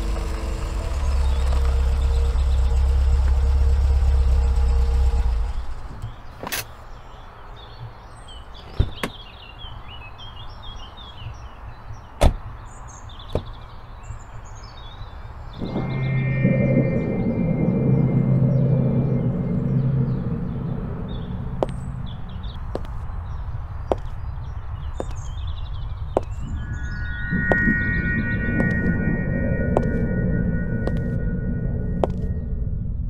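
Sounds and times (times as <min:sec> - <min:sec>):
car engine rumbling: 0:00.0 - 0:06.2, 0:15.6 - 0:33.0
birds chirping: 0:00.0 - 0:33.0
car door clicks and knocks: 0:12.2 - 0:12.5
steady low hum: 0:15.5 - 0:33.0.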